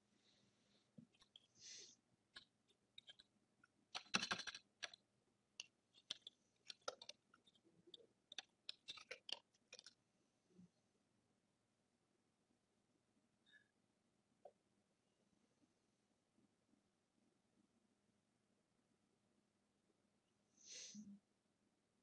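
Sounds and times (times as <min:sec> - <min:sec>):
keyboard and mouse clicks: 0:02.3 - 0:03.3, 0:03.9 - 0:05.0, 0:05.6 - 0:10.0.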